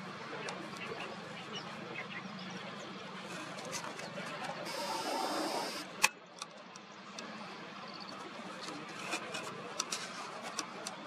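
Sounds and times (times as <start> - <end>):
faint outdoor background: 0.0 - 11.0
camera zoom motor whirring: 4.6 - 6.1.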